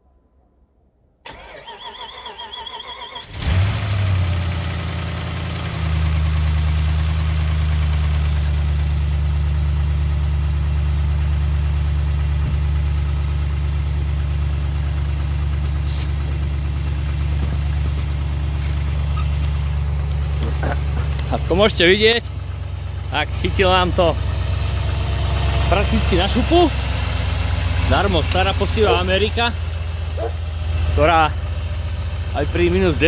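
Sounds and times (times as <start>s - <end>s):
car engine starting and idling: 1.2s - 33.0s
starter motor cranking: 1.3s - 4.0s.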